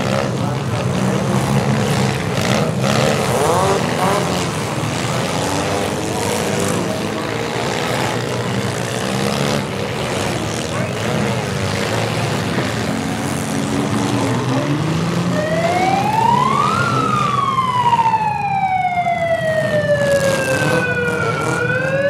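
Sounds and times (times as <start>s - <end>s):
low rumble of car engines: 0.0s - 22.0s
siren wailing: 14.3s - 22.0s.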